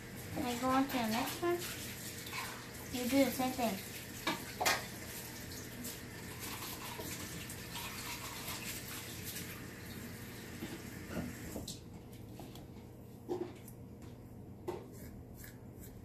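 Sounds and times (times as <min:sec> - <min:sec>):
tap running water: 0:00.0 - 0:11.9.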